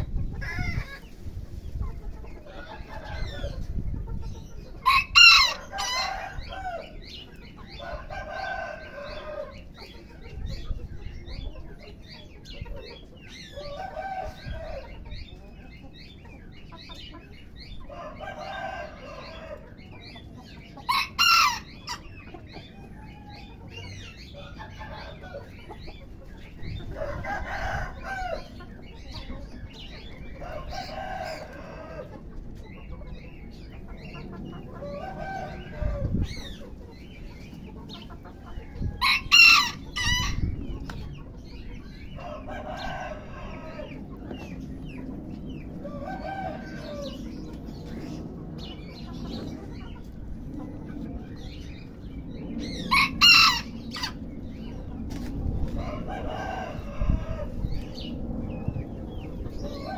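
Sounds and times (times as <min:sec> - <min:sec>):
high-pitched chicken calls: 0:00.0 - 0:32.3, 0:34.5 - 0:41.0
chickens clucking and calling: 0:00.0 - 0:59.9.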